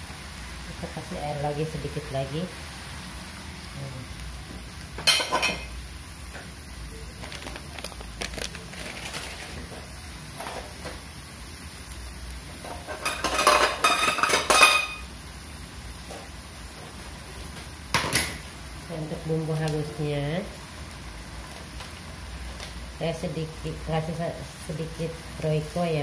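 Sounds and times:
metal pots and utensils clattering: 5.0s - 5.7s, 12.6s - 15.0s.

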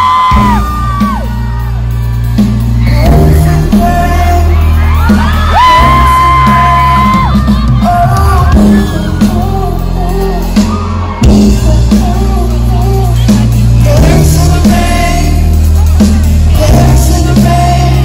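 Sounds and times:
fans whooping and shouting: 0.0s - 13.8s
live pop band and singer: 0.0s - 18.0s.

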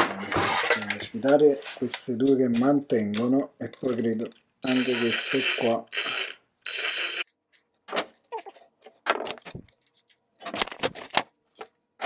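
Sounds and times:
cordless drill whirring: 4.7s - 7.3s.

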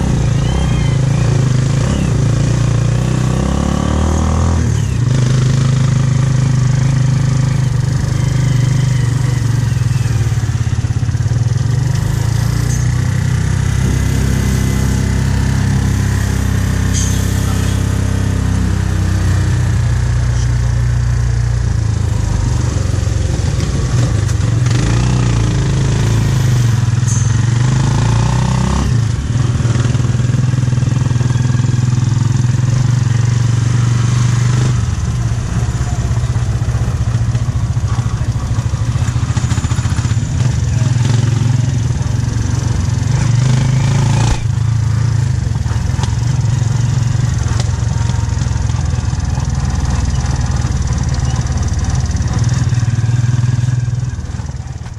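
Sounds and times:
motorcycle engine running: 0.0s - 54.9s.

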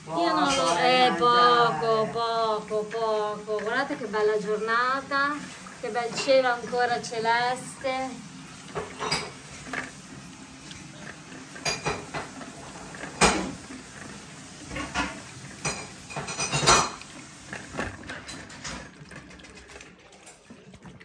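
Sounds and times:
ceramic plates clinking on stone: 11.6s - 13.6s, 14.7s - 17.1s.

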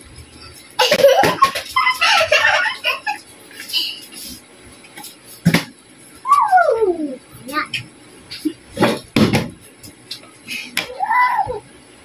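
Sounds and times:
people giggling and laughing: 0.8s - 4.1s.

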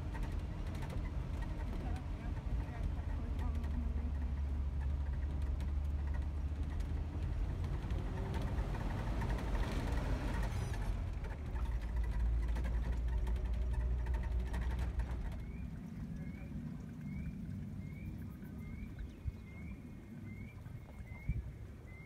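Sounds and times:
car engine and road noise: 0.0s - 22.0s.

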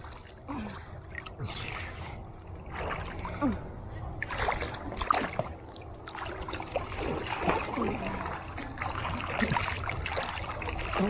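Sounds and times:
pool water sloshing: 0.0s - 11.0s
small splashes: 2.5s - 11.0s.

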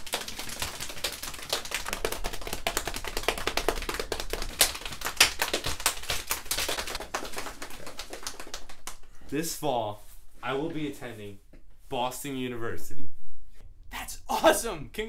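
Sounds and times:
hands drumming fast: 0.0s - 9.0s.

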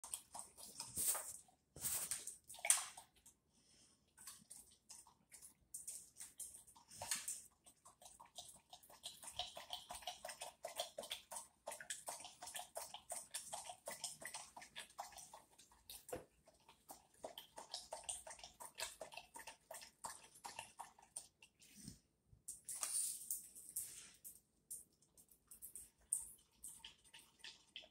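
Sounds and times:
dog lapping water: 0.0s - 3.4s, 4.1s - 21.8s, 25.2s - 27.9s.

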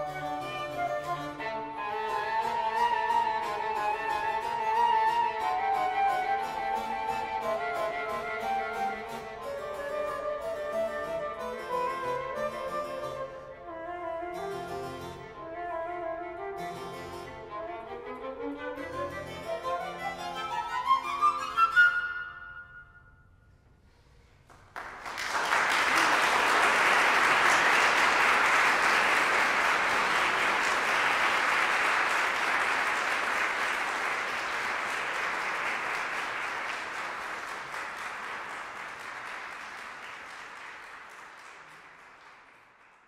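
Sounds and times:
audience applauding: 24.4s - 43.0s.

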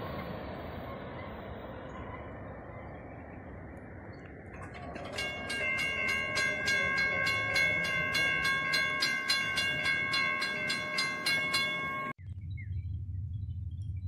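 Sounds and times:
crossing warning bell ringing: 4.4s - 12.2s.

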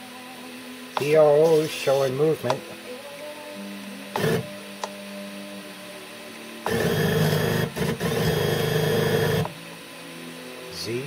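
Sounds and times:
stepper motor buzzing whine: 4.1s - 4.7s, 6.6s - 9.6s.

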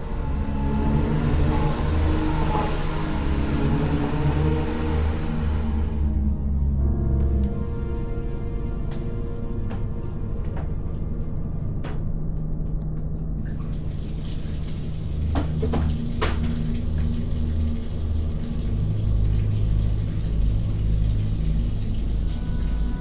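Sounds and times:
low droning music: 0.0s - 23.0s
water running into bathtub: 13.6s - 23.0s.

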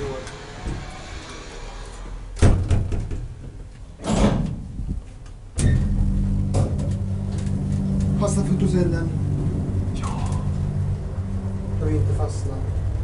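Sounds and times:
elevator doors closing: 5.5s - 13.0s
hydraulic pump humming: 5.6s - 13.0s.

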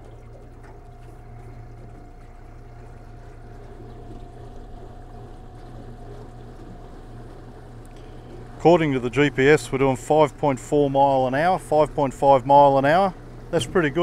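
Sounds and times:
water rushing along hull: 0.0s - 14.0s.

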